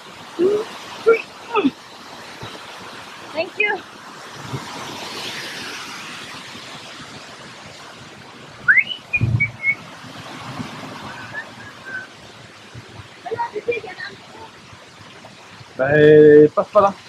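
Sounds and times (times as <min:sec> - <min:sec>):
stream water flowing: 0:00.0 - 0:17.0
whistled notes: 0:08.6 - 0:09.8, 0:11.1 - 0:12.1
low thump: 0:09.2 - 0:09.6.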